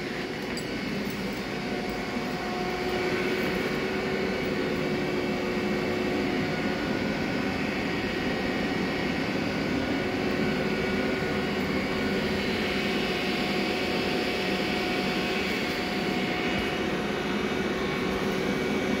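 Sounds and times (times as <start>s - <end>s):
machine hum with whining tones: 0.0s - 19.0s.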